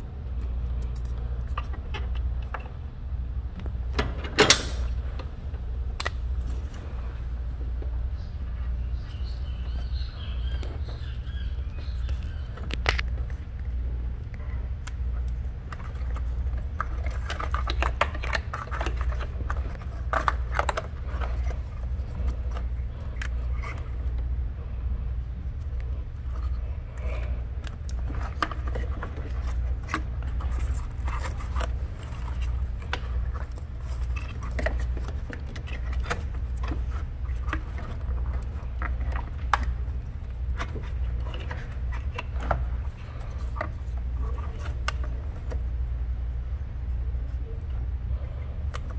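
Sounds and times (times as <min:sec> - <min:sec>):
steady low hum: 0:00.0 - 0:48.9
wiring harness rustling: 0:03.6 - 0:24.4, 0:25.1 - 0:45.9
plastic connectors clicking: 0:06.0 - 0:06.2.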